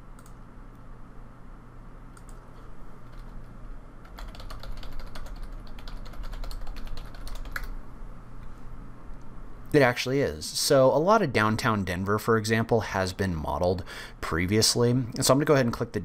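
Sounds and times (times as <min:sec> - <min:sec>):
typing on computer keyboard: 0:03.0 - 0:03.4, 0:04.0 - 0:07.8.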